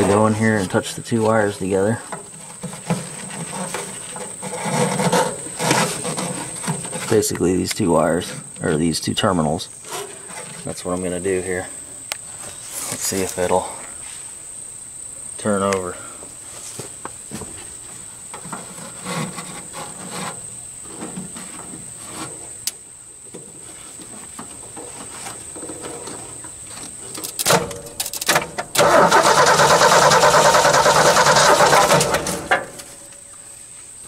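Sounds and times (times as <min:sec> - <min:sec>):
starter cranking engine: 0:27.2 - 0:32.8.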